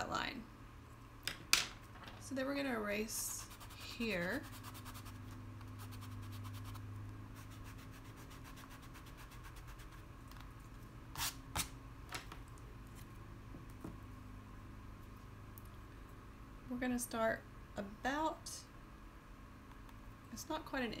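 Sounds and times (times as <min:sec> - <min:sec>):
faint low hum: 0:00.0 - 0:21.0
eraser rubbing on canvas: 0:03.2 - 0:06.8, 0:07.4 - 0:10.0.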